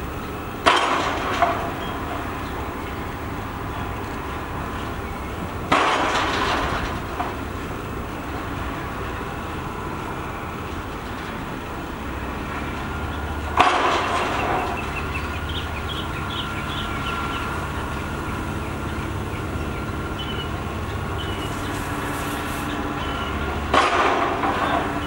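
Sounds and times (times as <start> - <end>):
heavy construction machinery running: 0.0 - 25.0
loud ringing bang: 23.0 - 25.0.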